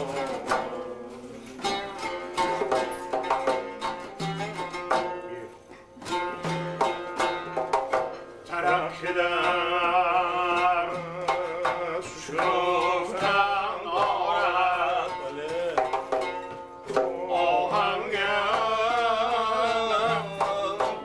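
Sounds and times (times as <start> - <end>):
man singing ornamented melody: 0.0 - 6.6, 8.4 - 21.0
plucked lutes strummed: 0.0 - 21.0.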